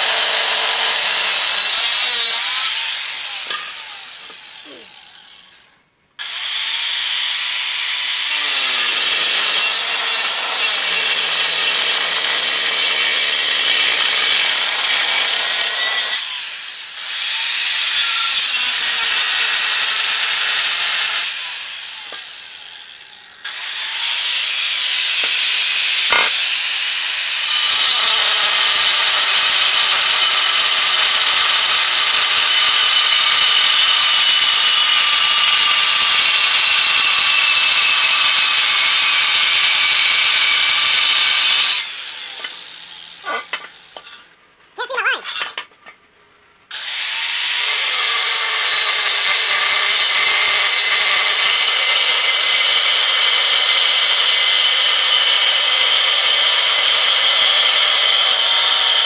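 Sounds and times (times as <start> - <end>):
angle grinder cutting metal: 0.0 - 44.3, 46.7 - 59.0.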